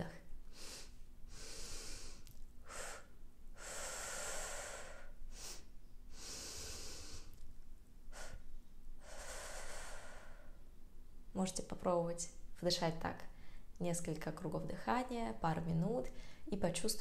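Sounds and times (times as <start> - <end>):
woman breathing slowly: 0.4 - 7.5, 8.1 - 10.8, 13.3 - 13.8, 16.1 - 16.5.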